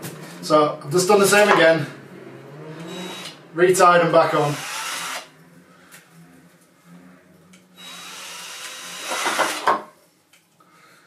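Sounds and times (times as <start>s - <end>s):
cordless drill spinning: 2.8s - 3.4s, 4.4s - 5.3s, 7.8s - 9.6s.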